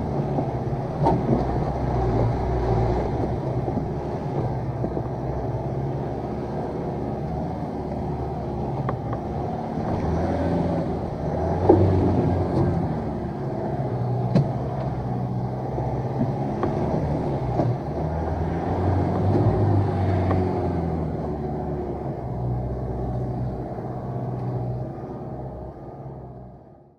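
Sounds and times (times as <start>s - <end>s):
vehicle knocks and clunks: 0.0s - 20.9s
vehicle engine at low revs: 0.0s - 26.9s.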